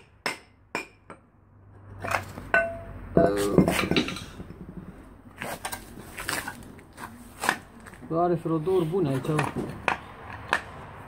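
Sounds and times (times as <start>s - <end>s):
brake drum parts clanking: 2.0s - 6.6s
metal clatter: 2.0s - 6.6s.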